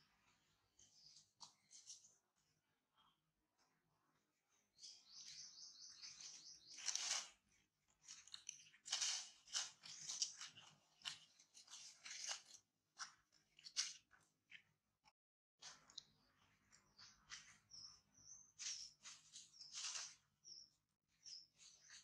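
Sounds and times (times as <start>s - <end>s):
dry leaves crunching: 6.1s - 7.4s, 8.0s - 12.6s, 18.6s - 20.2s.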